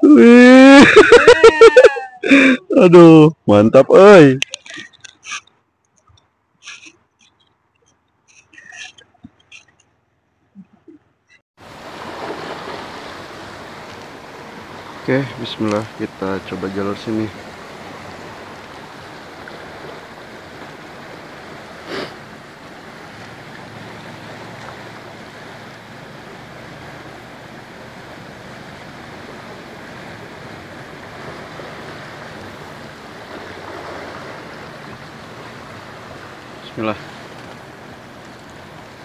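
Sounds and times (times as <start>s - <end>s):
river rushing: 11.6s - 39.0s.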